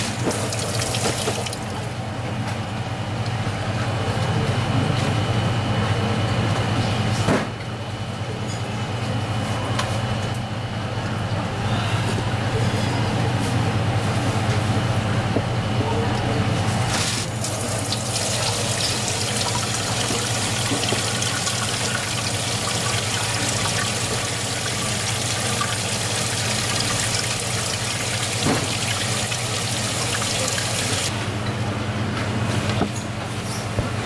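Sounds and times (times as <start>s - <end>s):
tap water running into sink: 0.0s - 1.8s, 17.4s - 31.1s
low hum of kitchen machinery: 0.0s - 34.0s.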